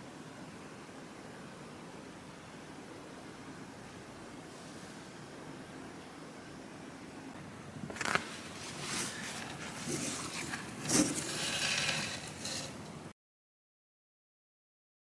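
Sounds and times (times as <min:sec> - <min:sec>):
handling rustling and knocks: 0:07.9 - 0:13.0.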